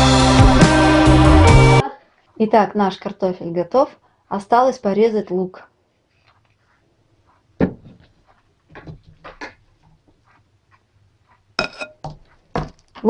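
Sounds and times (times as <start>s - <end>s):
cutting board and knife clattering: 11.6s - 12.8s.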